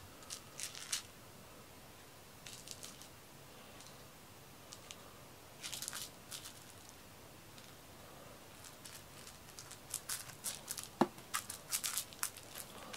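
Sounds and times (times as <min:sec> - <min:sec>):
rustles and light scratches: 0:02.4 - 0:04.0, 0:05.6 - 0:07.8, 0:08.5 - 0:12.9.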